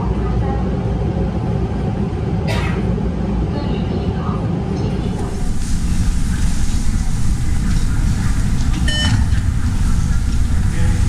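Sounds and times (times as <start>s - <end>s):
loud low rumble: 4.9s - 11.0s
fare gate electronic beep: 8.8s - 9.4s.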